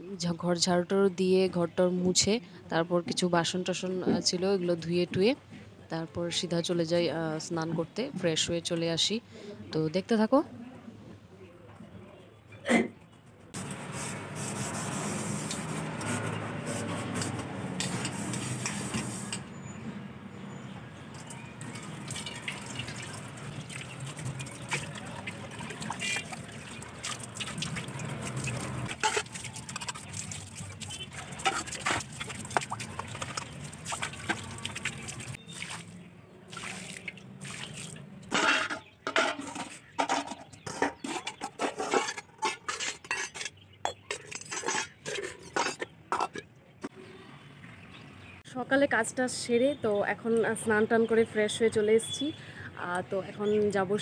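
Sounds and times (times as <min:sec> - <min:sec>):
water splashing on steel bowls: 0:13.6 - 0:19.4, 0:21.1 - 0:46.4
tap water running: 0:21.2 - 0:35.8.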